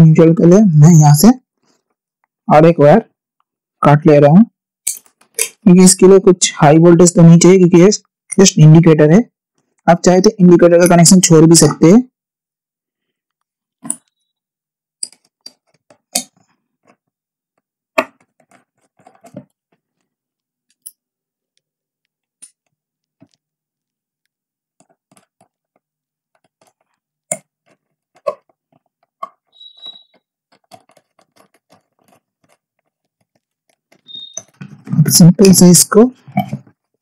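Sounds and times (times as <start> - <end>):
clicks and taps of handling tools: 15.0 - 17.0, 18.0 - 21.0, 22.3 - 23.4, 24.8 - 29.5.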